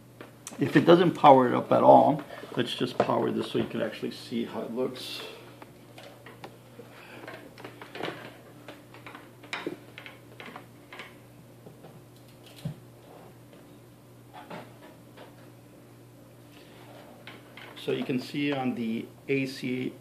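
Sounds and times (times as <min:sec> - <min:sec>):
low steady hum: 0:00.0 - 0:20.0
cables clicking and tapping: 0:07.2 - 0:12.8.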